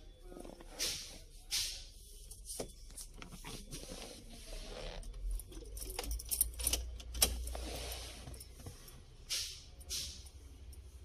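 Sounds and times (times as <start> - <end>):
tools clicking and rattling: 5.3 - 7.7.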